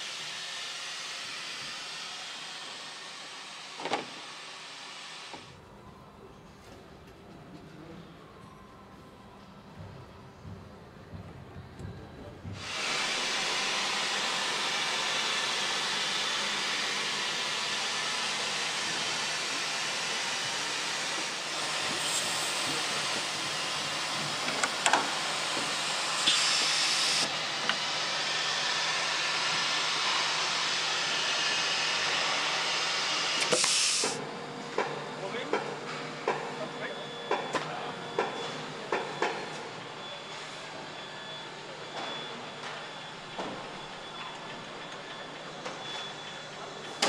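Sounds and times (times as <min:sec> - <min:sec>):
machinery hissing: 0:12.6 - 0:34.2.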